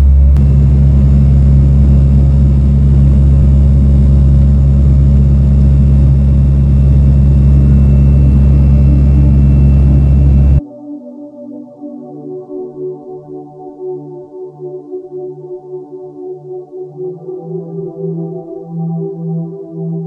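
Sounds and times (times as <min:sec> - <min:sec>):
turboprop engine and propeller drone: 0:00.0 - 0:10.6.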